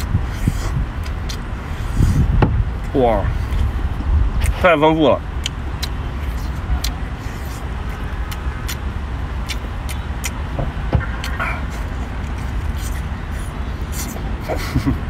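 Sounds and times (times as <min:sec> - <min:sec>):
chewing: 0:00.0 - 0:02.3, 0:05.4 - 0:14.7.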